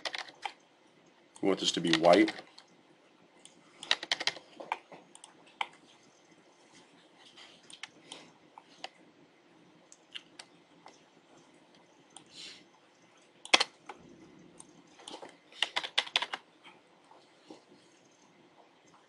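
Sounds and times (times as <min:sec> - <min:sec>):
typing on computer keyboard: 0:00.0 - 0:00.6, 0:03.4 - 0:05.8, 0:13.4 - 0:13.9, 0:14.6 - 0:16.5.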